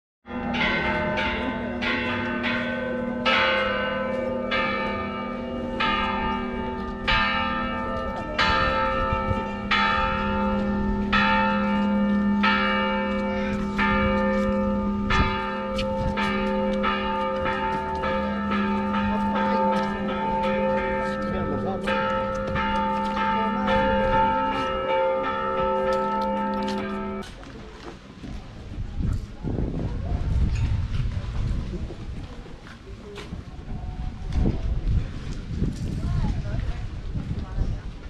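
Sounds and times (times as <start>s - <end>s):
church bells ringing: 0.2s - 27.3s.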